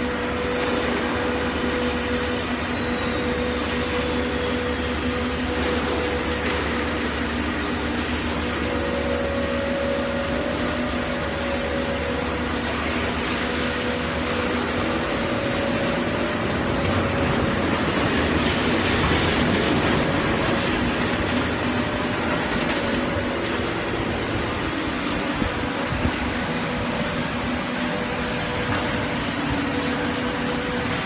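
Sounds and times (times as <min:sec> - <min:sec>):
low mechanical hum: 0:00.0 - 0:31.0
press table rolling on rails: 0:15.4 - 0:23.6.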